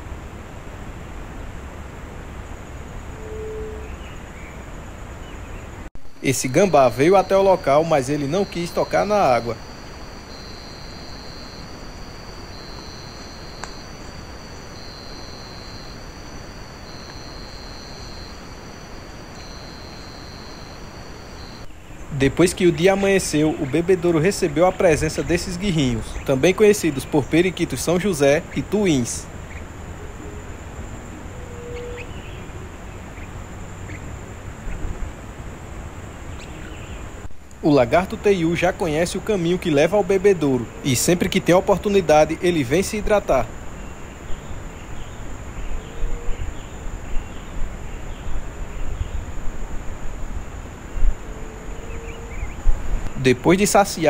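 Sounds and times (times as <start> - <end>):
constant hiss: 0.0 - 54.0
crickets trilling: 0.0 - 54.0
low background noise: 0.0 - 54.0
high-pitched insect buzz: 6.0 - 34.9
faint click: 13.6 - 13.8.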